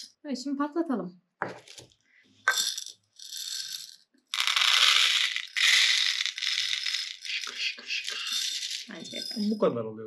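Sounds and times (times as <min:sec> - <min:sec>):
popcorn kernels pouring and rattling: 0:02.5 - 0:09.5.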